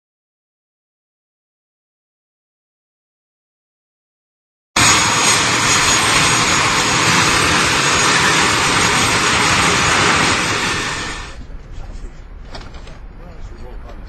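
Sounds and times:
jet engines with high whine: 4.8 - 11.5.

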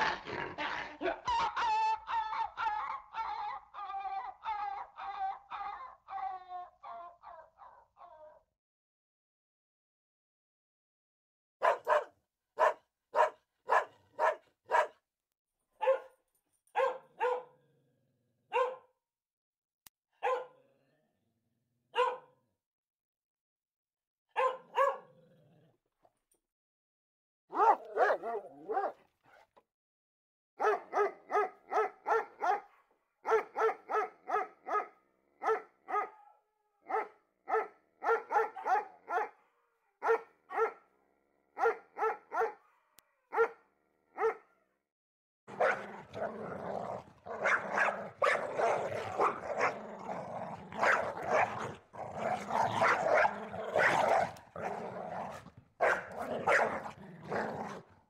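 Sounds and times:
dog barking: 11.6 - 15.0, 15.8 - 17.6, 18.5 - 19.0, 20.2 - 20.6, 21.9 - 22.4, 24.3 - 25.2, 27.5 - 29.5, 30.6 - 40.9, 41.5 - 44.6, 45.5 - 46.5, 47.3 - 50.1, 50.7 - 57.9.

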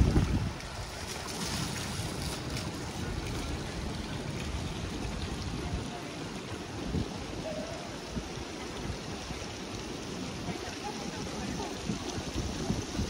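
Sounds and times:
faint voices: 5.2 - 13.0.

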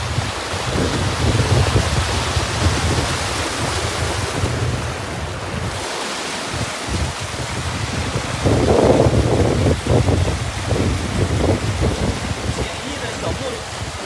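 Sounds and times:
river rushing over rocks: 0.0 - 14.0
wind buffeting microphone: 0.0 - 14.0.

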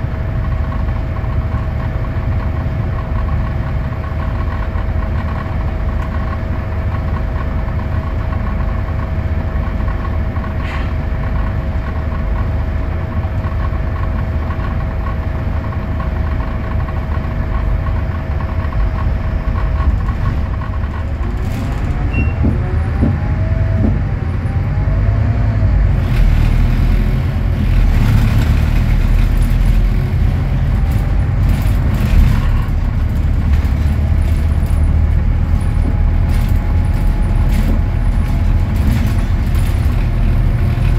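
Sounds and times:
bus diesel engine: 0.0 - 40.9
rattles and knocks: 17.0 - 24.5, 26.0 - 40.9.

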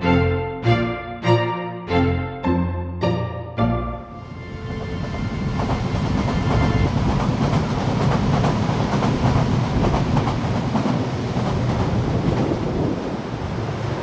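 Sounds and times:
subway train rumbling past: 3.0 - 14.0
wheels clacking over rail joints: 5.4 - 12.8.

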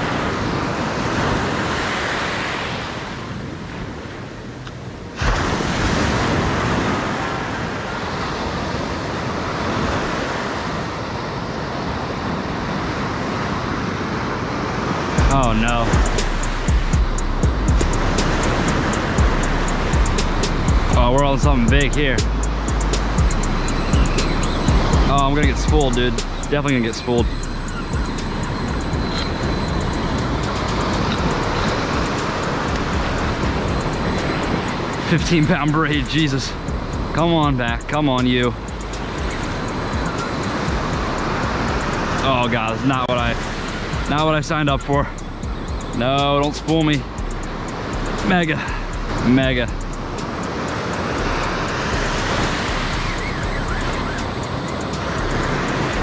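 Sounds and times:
ocean surf breaking: 0.0 - 56.0
wind on microphone: 0.0 - 56.0
surf breaking: 5.2 - 10.6
fishing reel drag ticking: 15.4 - 42.4, 43.3 - 56.0.

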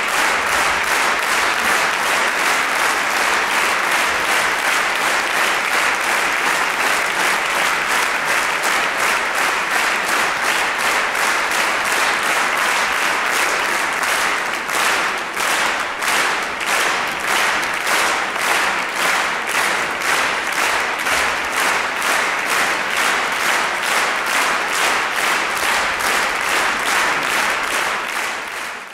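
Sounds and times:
audience applauding: 0.0 - 28.9
rhythmic unison clapping: 0.0 - 28.9.

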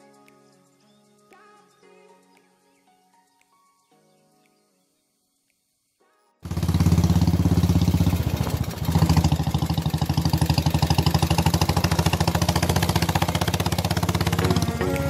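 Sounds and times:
motorcycle engine running: 6.5 - 15.0.

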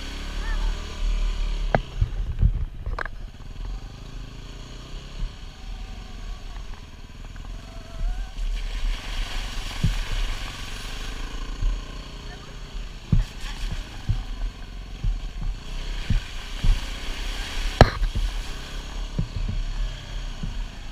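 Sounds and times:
motorcycle engine running: 0.0 - 20.9
sharp knocks: 17.7 - 18.4.

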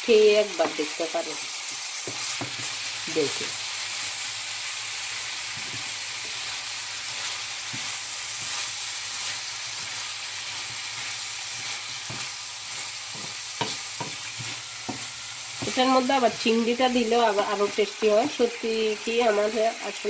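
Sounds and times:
vegetables sizzling in a pan: 0.0 - 20.0
spatula scraping and knocking pan: 2.0 - 2.7, 7.6 - 16.6.

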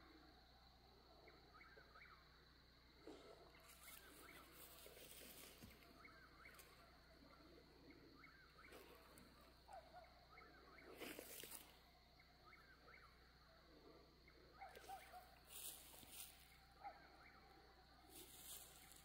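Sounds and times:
faint wavering animal chirp: 1.1 - 19.0
rustle: 15.5 - 16.4, 18.2 - 19.0.

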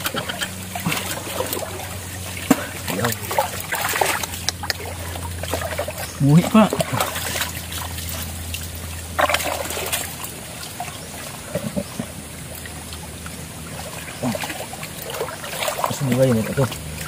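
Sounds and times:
water sloshing and trickling: 0.0 - 17.0
water splashes: 0.0 - 17.0.

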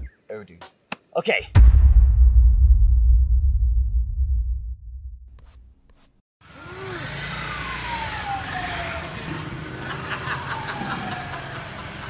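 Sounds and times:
vehicle engines and road noise: 6.4 - 12.0.

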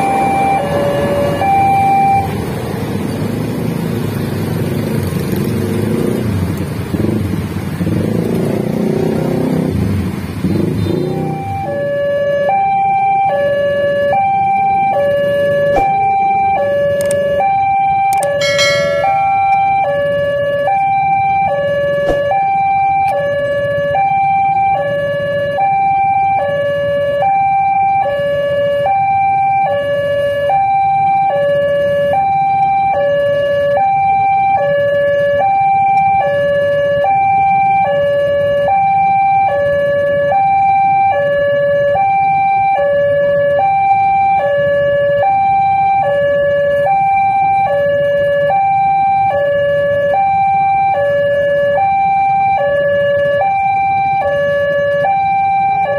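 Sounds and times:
two-tone crossing warning alarm: 0.0 - 2.6, 10.5 - 55.9
low rumble of traffic: 0.0 - 55.9.

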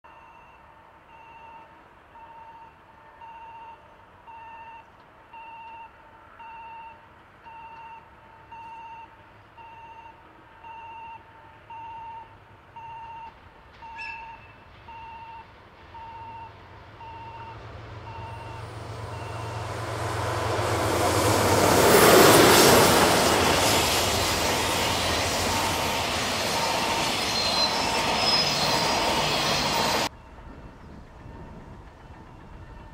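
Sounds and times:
locomotive rumble: 13.7 - 32.9
electronic warning alarm beeping: 16.0 - 19.7.

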